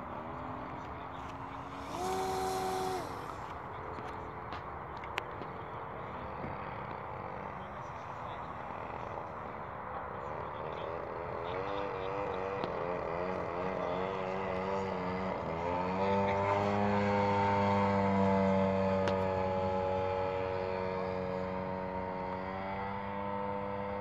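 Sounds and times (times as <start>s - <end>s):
model aeroplane motor and propeller: 0.0s - 24.0s.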